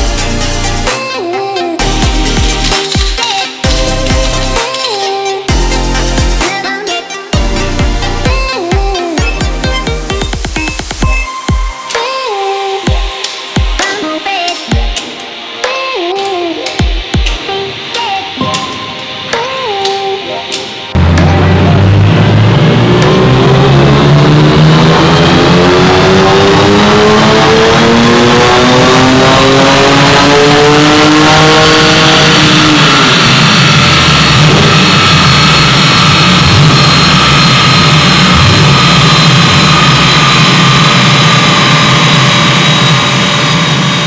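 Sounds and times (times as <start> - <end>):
high whine of rollers: 0.0 - 44.0
car engine revving at full throttle: 20.9 - 44.0.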